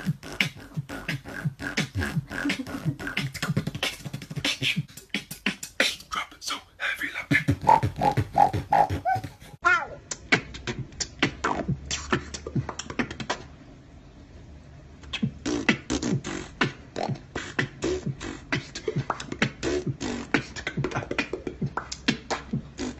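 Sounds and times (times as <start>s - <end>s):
beatboxing: 0.0s - 13.6s, 15.0s - 22.9s.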